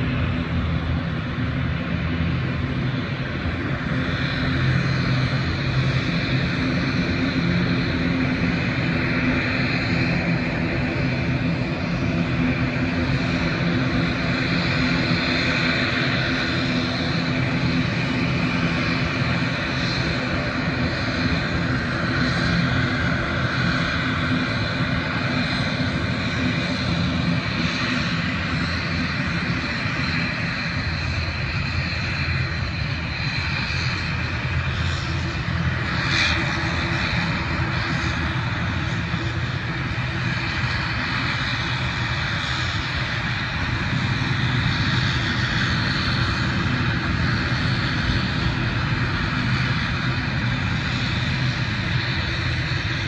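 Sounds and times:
airliner engines droning: 0.0s - 53.0s.

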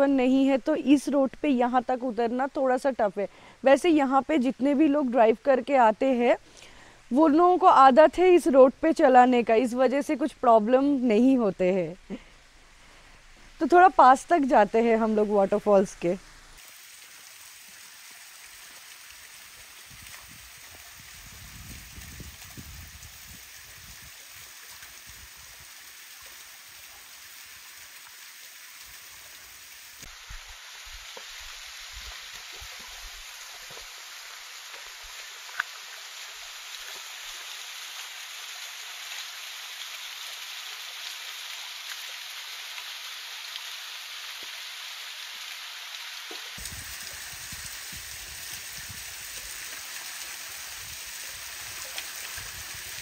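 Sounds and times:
waterfall splashing into pool: 16.6s - 53.0s.

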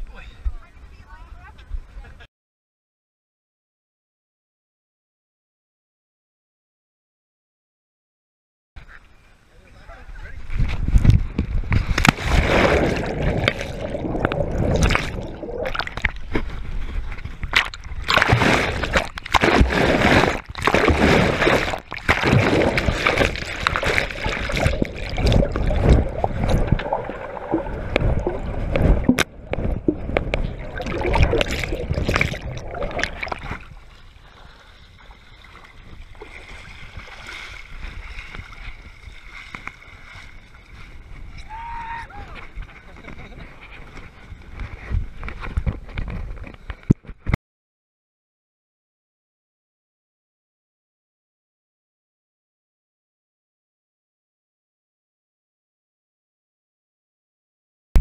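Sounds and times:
water splashing and sloshing: 10.8s - 41.6s.

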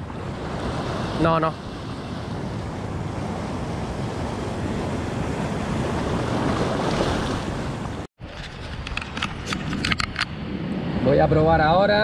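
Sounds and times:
sea surf washing in: 0.0s - 8.7s, 10.1s - 12.0s
wind buffeting microphone: 0.0s - 12.0s.

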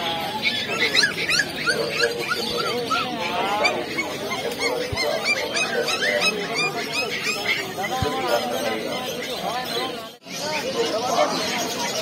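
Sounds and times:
puppies whimpering and yelping: 0.4s - 8.8s.

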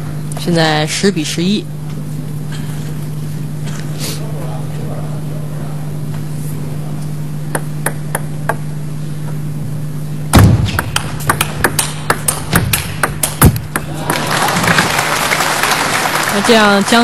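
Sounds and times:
steady low hum: 0.0s - 17.0s
heavier thuds: 10.3s - 11.2s.

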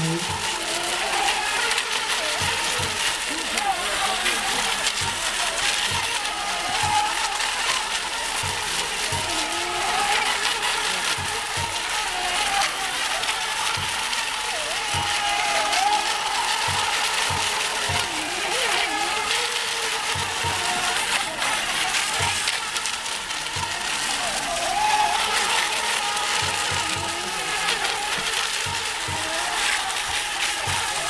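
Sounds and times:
model boat motors whining: 0.0s - 31.0s
rushing water noise: 0.0s - 31.0s.

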